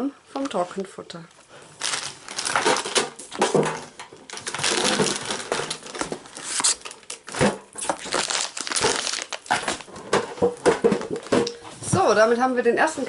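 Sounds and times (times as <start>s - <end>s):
plastic packaging crinkling: 1.4s - 11.7s.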